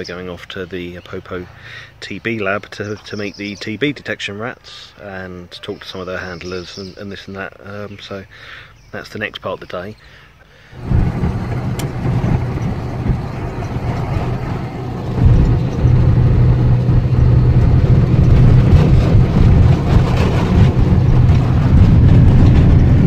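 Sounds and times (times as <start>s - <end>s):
car engine and road rumble: 10.1s - 23.0s.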